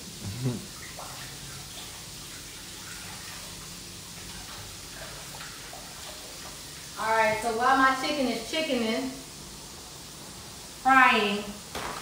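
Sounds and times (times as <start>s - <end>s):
faucet running into sink: 0.0s - 8.5s.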